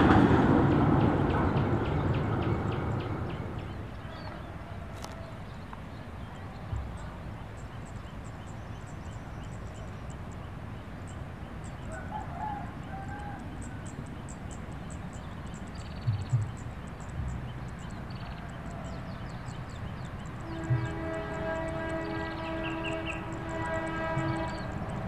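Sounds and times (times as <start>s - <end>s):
rooster crowing in the distance: 4.1s - 5.5s, 11.9s - 13.9s.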